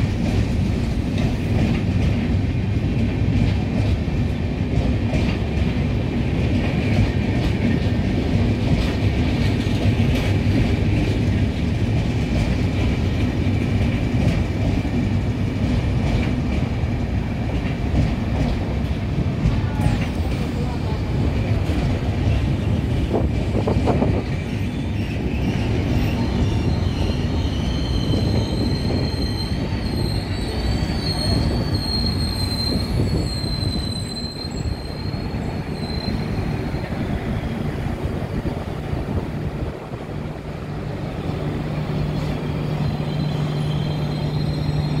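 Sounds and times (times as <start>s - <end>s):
train wheels rumbling on rail: 0.0s - 45.0s
high wavering wheel squeal: 24.5s - 37.6s, 42.0s - 45.0s.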